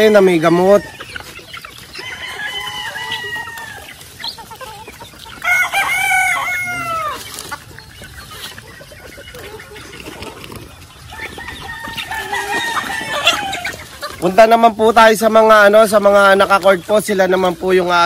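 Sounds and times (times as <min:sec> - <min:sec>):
chickens clucking: 0:00.0 - 0:18.0
rooster crowing: 0:02.0 - 0:03.9, 0:05.4 - 0:07.2, 0:11.1 - 0:13.8.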